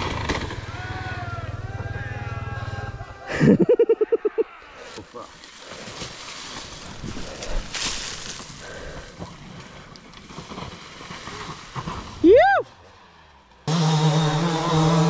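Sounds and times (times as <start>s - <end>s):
person whooping: 0.7s - 4.6s, 12.2s - 12.7s.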